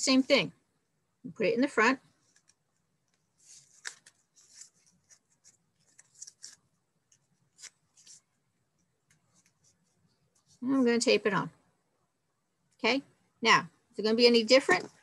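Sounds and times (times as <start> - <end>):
faint plastic crinkles and rustles: 2.1 - 10.6.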